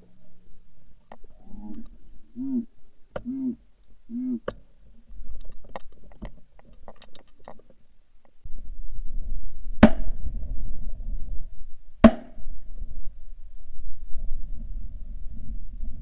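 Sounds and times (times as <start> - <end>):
loud shotgun shot: 9.8 - 10.2.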